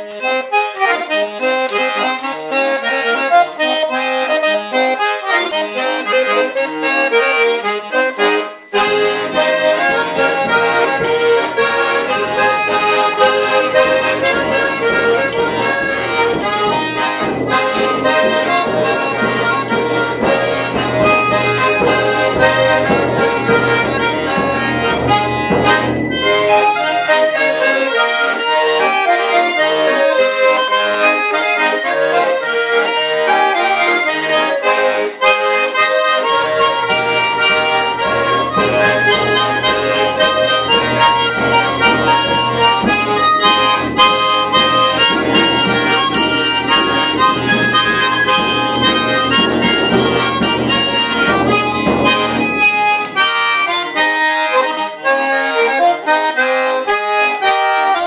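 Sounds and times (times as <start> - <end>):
accordions playing polka: 0.0 - 58.0.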